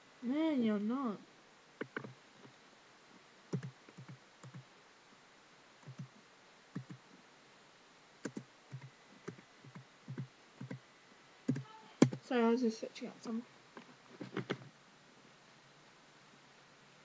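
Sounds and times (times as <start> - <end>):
typing on computer keyboard: 1.8 - 2.1, 3.5 - 4.6, 11.5 - 12.2.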